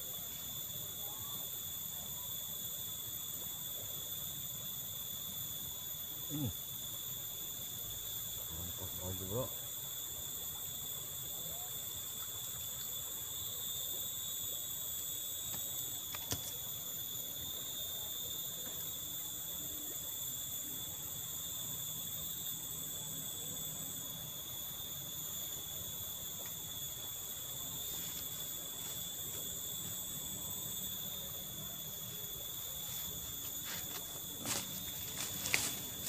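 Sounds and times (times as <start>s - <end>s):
high-pitched insect chorus: 0.0s - 36.0s.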